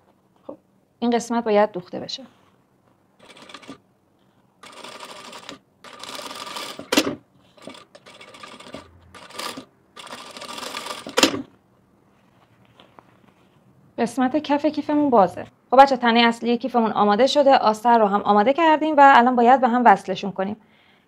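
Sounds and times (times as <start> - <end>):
sewing machine clack: 3.2 - 3.8, 4.6 - 11.5
sewing machine stitching: 3.2 - 3.8, 4.6 - 11.5.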